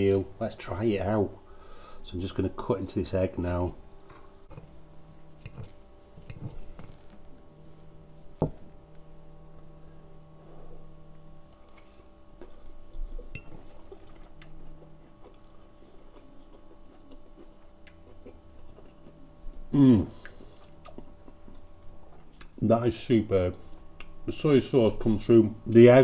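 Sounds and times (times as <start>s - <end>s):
faint low hum: 0.0s - 26.0s
wet chewing: 11.5s - 19.2s, 20.2s - 22.6s.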